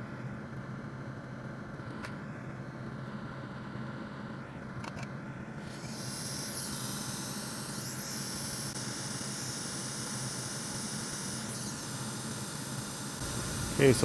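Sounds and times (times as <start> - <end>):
hot air hissing: 5.7 - 14.0
low steady hum: 13.2 - 14.0.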